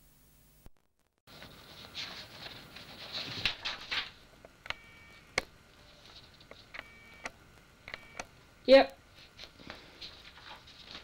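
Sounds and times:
paper rustling and crinkling: 0:01.3 - 0:04.2, 0:09.2 - 0:11.0
sharp clicks: 0:06.7 - 0:08.3.

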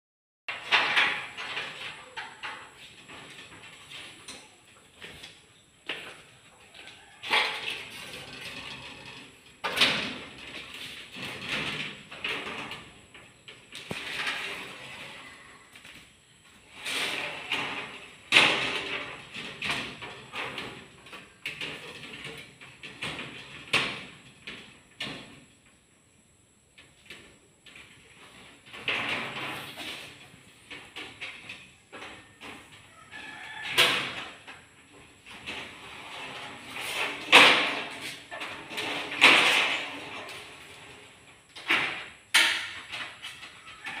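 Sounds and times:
sliding window scraping along track: 0:07.2 - 0:13.1, 0:13.9 - 0:15.6, 0:16.6 - 0:23.7, 0:35.2 - 0:41.4.

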